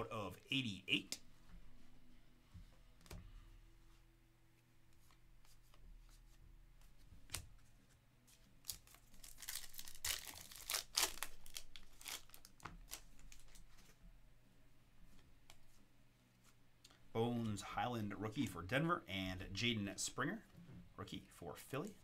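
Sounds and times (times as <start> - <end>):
foil wrapper tearing and crinkling: 8.6 - 13.6.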